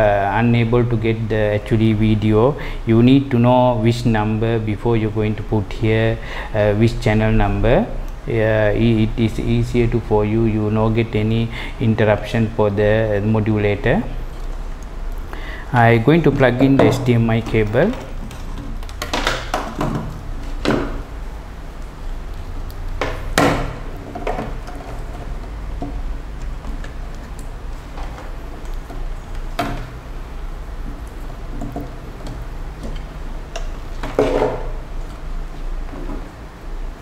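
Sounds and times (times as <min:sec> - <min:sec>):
steady low hum: 0:00.0 - 0:37.0
cable connectors clicking on wood: 0:16.3 - 0:21.1.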